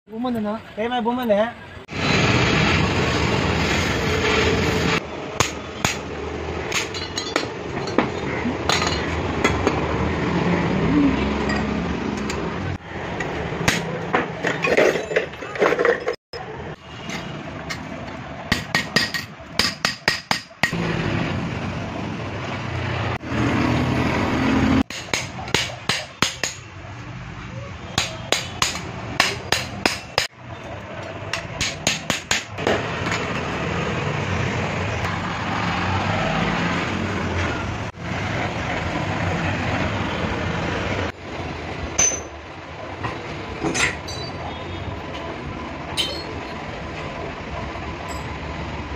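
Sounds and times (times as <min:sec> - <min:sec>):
hammer striking metal tube: 0:05.4 - 0:06.0, 0:18.5 - 0:20.8, 0:24.9 - 0:26.7, 0:28.0 - 0:30.3, 0:31.3 - 0:33.2.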